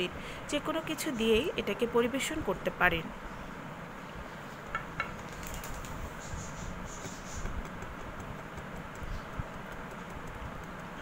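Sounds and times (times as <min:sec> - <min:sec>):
sweets clicking in glass dish: 0:07.4 - 0:11.0.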